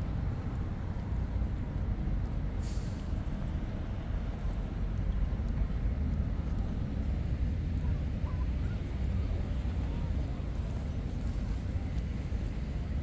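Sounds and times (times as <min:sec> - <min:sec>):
low rumble of city traffic: 0:00.0 - 0:13.0
brief hiss: 0:02.6 - 0:03.2.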